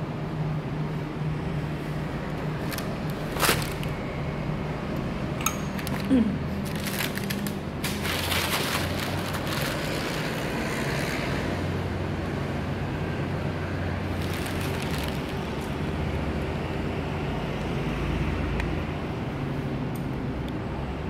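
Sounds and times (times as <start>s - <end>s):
packaging rustling: 2.6s - 3.9s, 5.8s - 10.4s, 14.1s - 15.8s.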